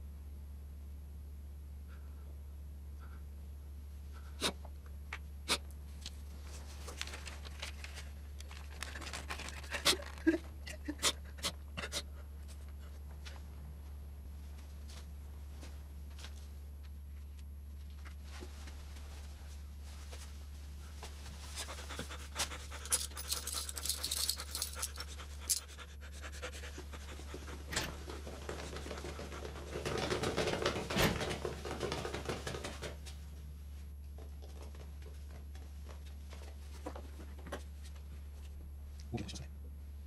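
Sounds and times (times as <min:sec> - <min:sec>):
steady low hum: 0:00.0 - 0:40.0
rustling and shuffling: 0:05.8 - 0:11.0, 0:12.2 - 0:39.0
person panting heavily: 0:21.6 - 0:29.6.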